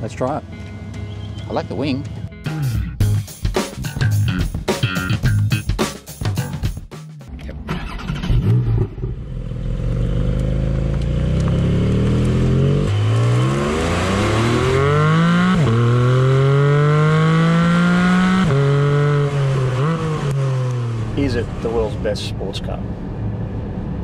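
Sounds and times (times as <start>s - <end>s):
car engine accelerating hard: 7.8s - 21.7s.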